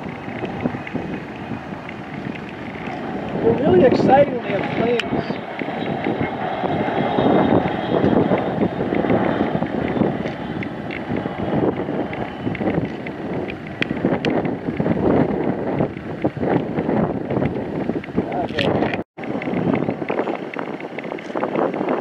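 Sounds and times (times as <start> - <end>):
jet engines rumbling: 0.0 - 22.0
wind buffeting microphone: 0.0 - 22.0.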